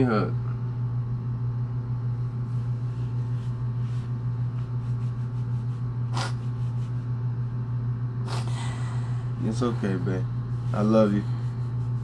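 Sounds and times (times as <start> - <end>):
steady low hum: 0.0 - 12.0
woman sniffing: 6.1 - 6.8, 8.2 - 9.2.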